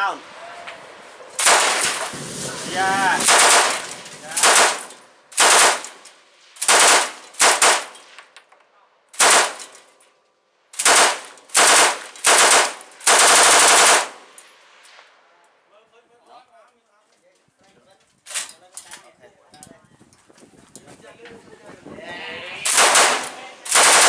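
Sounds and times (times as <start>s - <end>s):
machine gun firing bursts: 1.4s - 2.3s, 3.2s - 6.0s, 6.6s - 7.9s, 9.2s - 9.6s, 10.8s - 14.2s, 22.7s - 24.0s.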